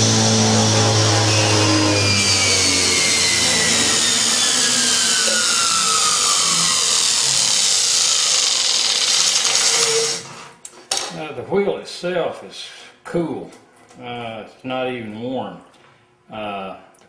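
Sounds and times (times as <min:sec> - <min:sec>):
spindle whir with falling whine: 0:00.0 - 0:10.6.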